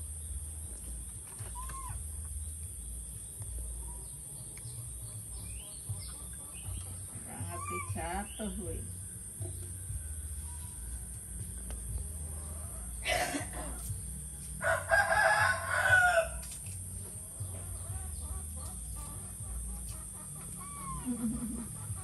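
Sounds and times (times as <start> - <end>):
animal calls: 1.4 - 2.3, 4.9 - 8.6, 17.6 - 22.0.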